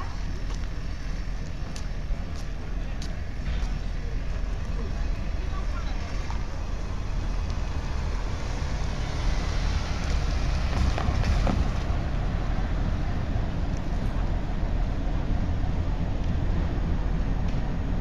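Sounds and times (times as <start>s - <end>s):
locomotive engine rumbling: 0.0s - 18.0s.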